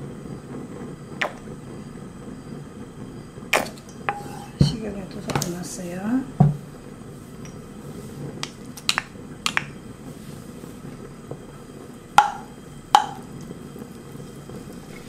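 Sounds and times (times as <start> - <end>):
faint oil sizzle: 0.0 - 15.0
wooden spoon knocking on wok: 6.4 - 6.6, 12.2 - 13.4.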